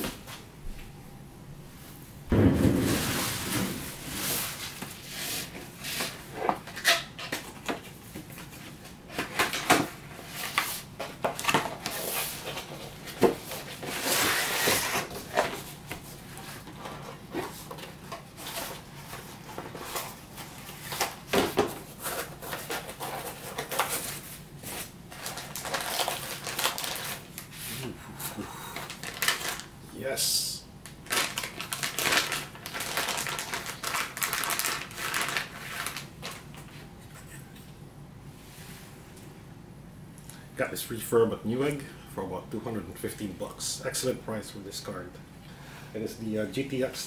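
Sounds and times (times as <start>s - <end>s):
plastic bag rustling: 2.4s - 6.8s, 7.5s - 27.9s, 28.7s - 29.7s, 31.0s - 36.8s.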